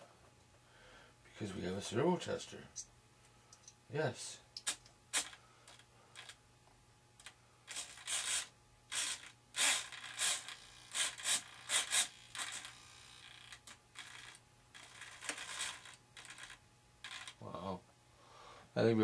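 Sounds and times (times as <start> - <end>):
small servo whirring: 7.7 - 17.4.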